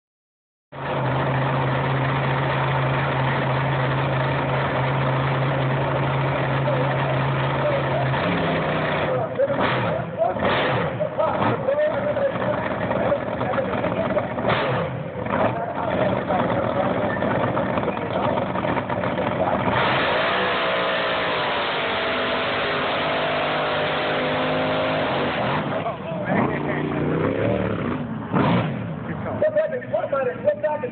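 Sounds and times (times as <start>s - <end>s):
boat engine revving: 19.1s - 29.2s.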